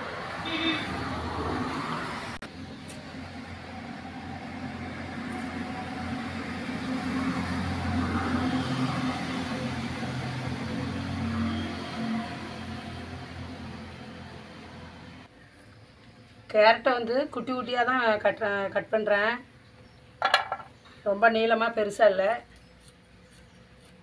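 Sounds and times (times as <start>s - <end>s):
motor engine droning: 2.2s - 15.3s.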